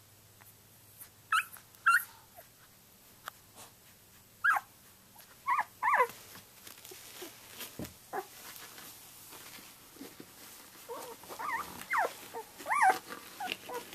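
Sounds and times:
puppy whimpering: 0:01.3 - 0:02.5, 0:04.4 - 0:06.1, 0:08.1 - 0:08.3, 0:10.9 - 0:13.9.

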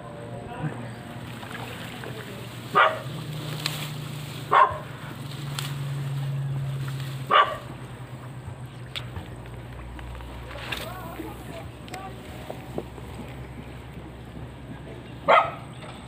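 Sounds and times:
steady low hum: 0:00.0 - 0:16.0
dog barking: 0:02.7 - 0:03.1, 0:04.5 - 0:04.9, 0:07.3 - 0:07.7, 0:15.3 - 0:15.7.

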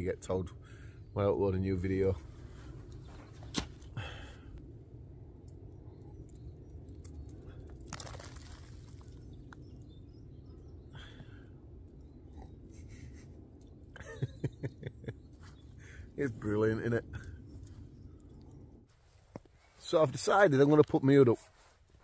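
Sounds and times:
man chuckling: 0:12.6 - 0:16.0.

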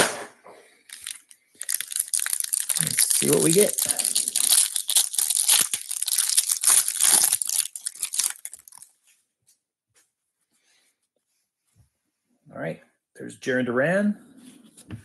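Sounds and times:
plastic wrapper tearing and crinkling: 0:00.9 - 0:08.9.

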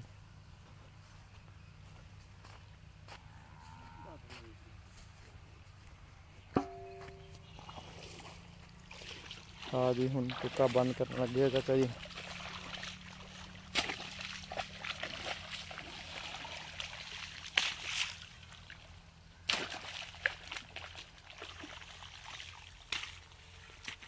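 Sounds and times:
trickling water: 0:07.4 - 0:24.0
mattock chopping into mud: 0:13.6 - 0:15.8, 0:17.4 - 0:18.2, 0:19.5 - 0:20.9, 0:22.9 - 0:23.2.

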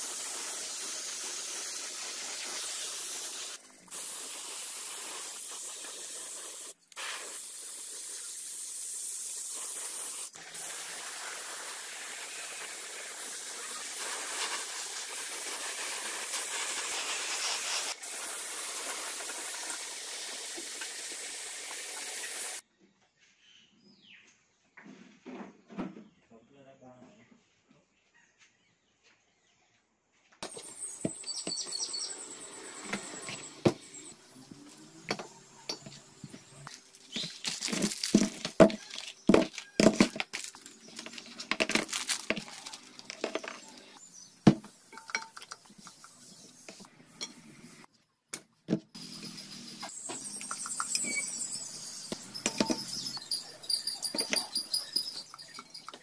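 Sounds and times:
high chirps: 0:30.4 - 0:34.4, 0:49.0 - 0:56.0
metal parts clinking on cardboard: 0:52.4 - 0:56.0.

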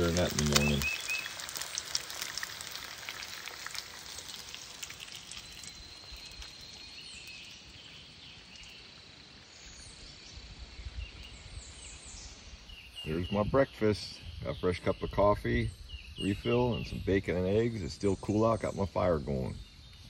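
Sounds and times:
eggs frying crackling: 0:00.0 - 0:09.7.

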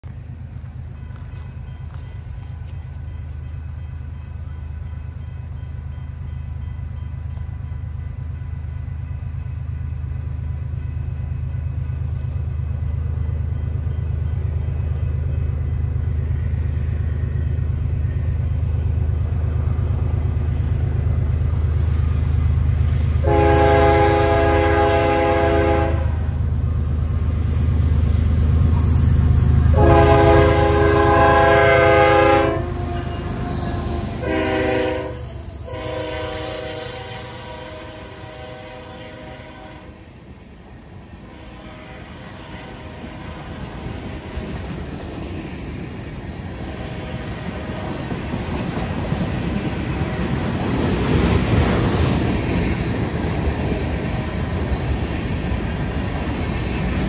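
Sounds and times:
diesel locomotive engine rumble: 0:00.0 - 0:57.0
train air horn blasts: 0:23.2 - 0:26.4, 0:29.6 - 0:40.1, 0:41.2 - 0:43.2, 0:46.7 - 0:47.9.

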